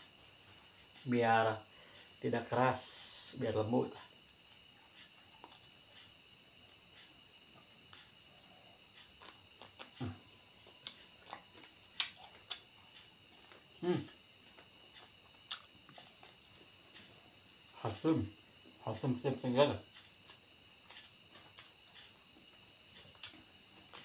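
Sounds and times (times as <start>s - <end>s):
crickets chirping: 0.0s - 24.0s
chewing clicks and smacks: 5.0s - 6.1s, 8.8s - 17.2s, 19.9s - 24.0s.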